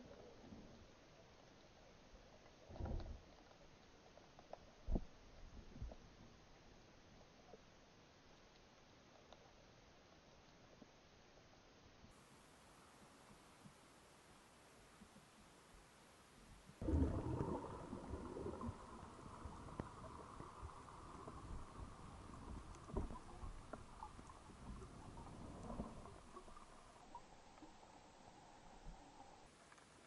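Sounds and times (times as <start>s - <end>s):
small underwater clicks: 0.0s - 7.8s, 8.4s - 11.5s, 16.8s - 30.0s
underwater bubbles: 16.4s - 30.0s
low rumbling underwater movement: 16.5s - 30.0s
underwater rush of water: 16.5s - 30.0s.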